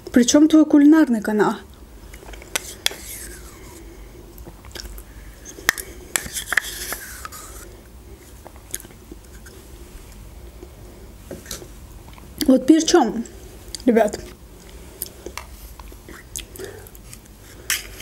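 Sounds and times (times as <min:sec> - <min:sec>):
soft eating sounds: 0:01.7 - 0:12.5, 0:13.2 - 0:18.0
spoon scraping plastic cup: 0:06.1 - 0:07.7.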